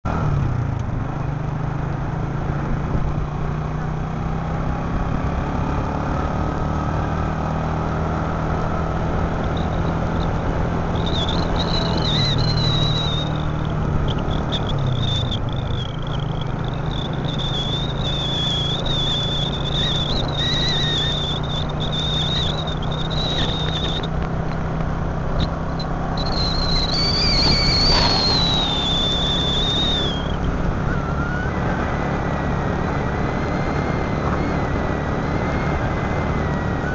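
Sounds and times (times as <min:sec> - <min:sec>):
wind and road noise: 0:00.0 - 0:36.9
high wavering whistle tone: 0:09.4 - 0:24.3, 0:25.4 - 0:36.9
motor scooter engine running: 0:25.7 - 0:31.5.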